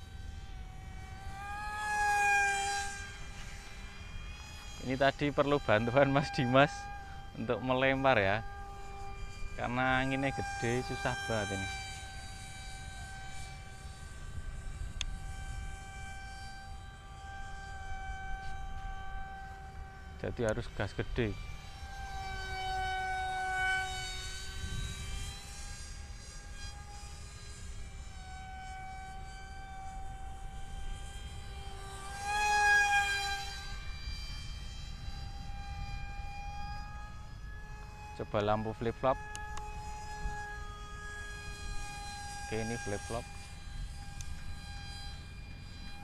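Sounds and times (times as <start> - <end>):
model plane electric motor whine: 0.0 - 46.0
wind rumbling on microphone: 23.8 - 25.8.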